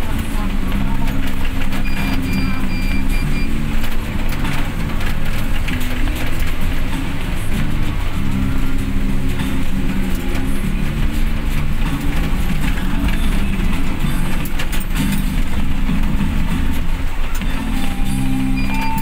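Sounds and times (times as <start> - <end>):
music from car stereo: 0.0 - 19.0
rain: 0.0 - 19.0
van driving on wet road: 0.0 - 19.0.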